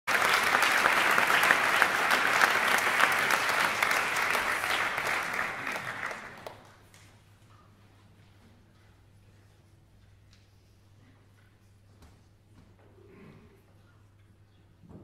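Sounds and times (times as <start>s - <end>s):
audience applauding: 0.1s - 6.9s.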